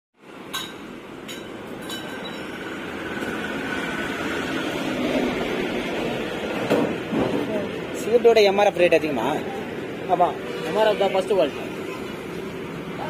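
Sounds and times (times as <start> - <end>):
traffic noise: 0.2 - 13.0.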